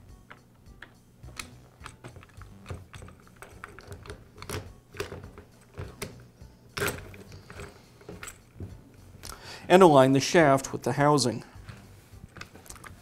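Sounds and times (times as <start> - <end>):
soft background music: 0.0 - 13.0
plastic parts clicking: 0.3 - 6.2, 11.7 - 13.0.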